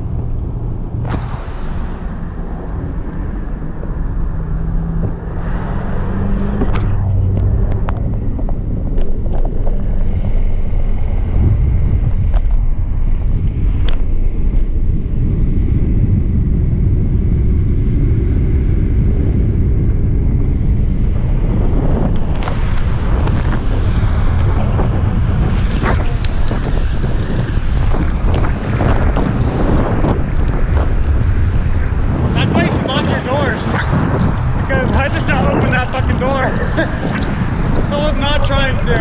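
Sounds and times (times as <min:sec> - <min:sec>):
road noise: 0:00.0 - 0:39.0
wind rushing over microphone: 0:00.0 - 0:39.0
sharp clicks and rattles: 0:06.6 - 0:10.2.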